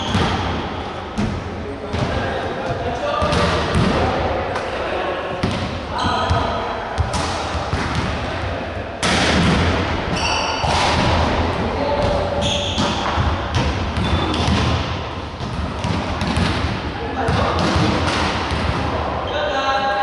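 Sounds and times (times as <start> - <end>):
high squeaks: 10.1 - 10.6, 12.4 - 13.0.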